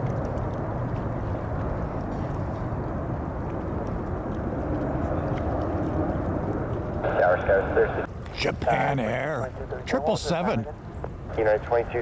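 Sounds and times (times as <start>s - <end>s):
distant jet engines rumbling: 0.0s - 12.0s.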